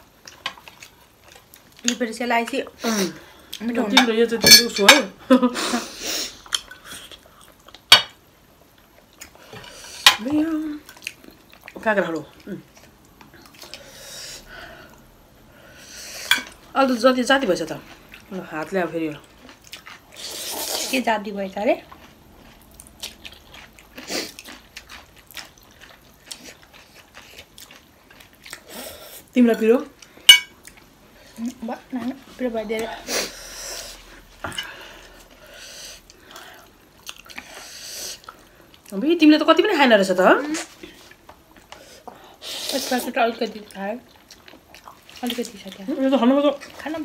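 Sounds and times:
slurping and chewing noodles: 19.2s - 21.0s, 21.8s - 29.3s
fork clinking on ceramic plate: 30.3s - 30.5s.

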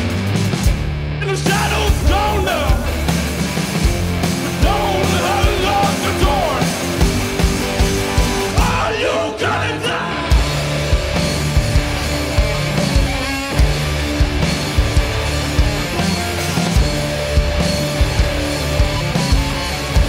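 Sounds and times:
drum kit steady beats: 0.0s - 8.9s, 10.3s - 20.0s
electric guitar: 0.0s - 20.0s
keyboard: 0.0s - 20.0s
male lead vocals: 1.2s - 3.3s, 4.4s - 7.0s, 8.5s - 10.6s.

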